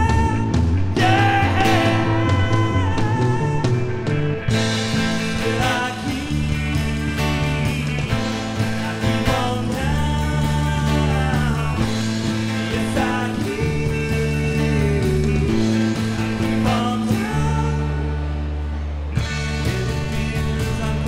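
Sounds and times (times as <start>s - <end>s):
acoustic guitar: 0.0s - 21.0s
bass guitar: 0.0s - 21.0s
drums: 0.0s - 21.0s
electric guitar: 0.0s - 21.0s.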